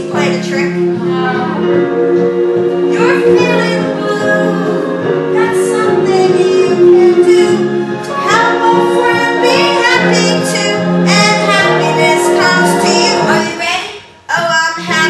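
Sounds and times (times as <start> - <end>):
backing music: 0.0 - 15.0
female and child-like singing: 8.2 - 15.0.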